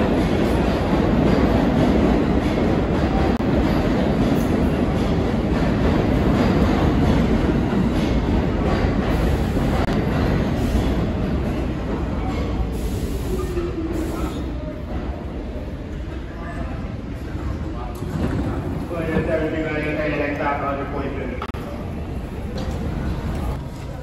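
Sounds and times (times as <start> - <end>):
subway train rumbling on rails: 0.0 - 24.0.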